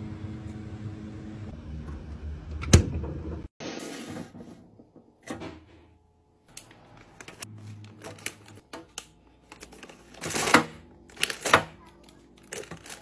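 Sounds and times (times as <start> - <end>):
snack bag packaging crinkling: 11.1 - 13.0.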